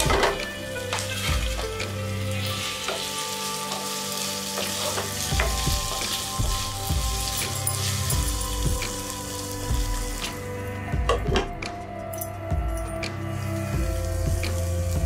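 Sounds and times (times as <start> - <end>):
spatula scraping a pan: 0.0 - 10.1
vegetables sizzling in oil: 0.0 - 10.7, 13.1 - 15.0.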